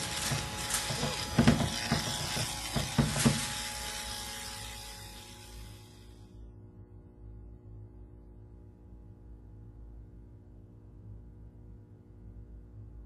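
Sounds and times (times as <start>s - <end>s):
sharp electrical cracks: 0.0s - 6.2s
crackling electrical buzz: 0.0s - 6.3s
low electrical hum: 0.0s - 13.0s.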